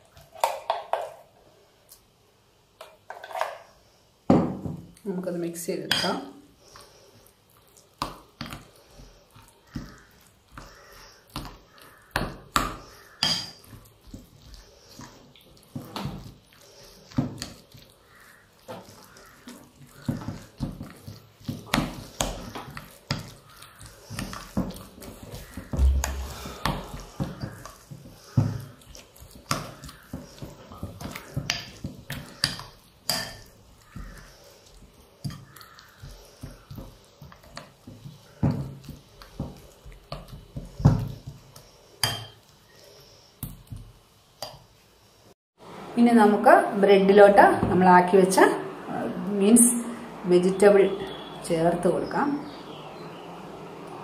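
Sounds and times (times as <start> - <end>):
spoon stirring thick mix: 5.0 - 44.9
soft wet squish: 6.6 - 41.7.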